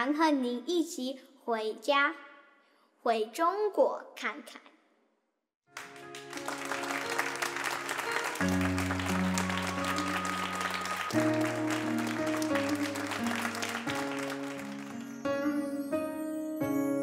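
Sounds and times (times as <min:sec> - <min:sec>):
audience applauding: 0:05.7 - 0:15.3
background music with chords: 0:05.8 - 0:17.0.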